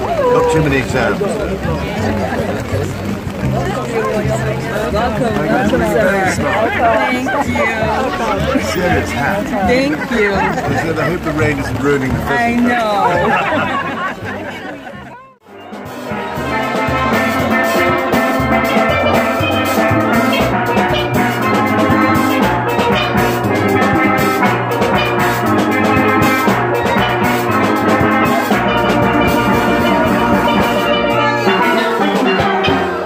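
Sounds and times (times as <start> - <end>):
drums and cymbals: 15.4 - 33.0
steel pans ringing: 16.6 - 33.0.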